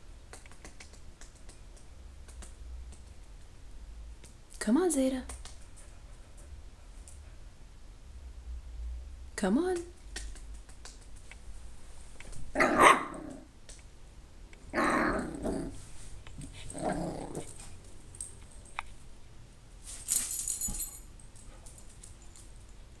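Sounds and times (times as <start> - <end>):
puppy growling and barking: 12.5 - 13.5, 14.7 - 17.8.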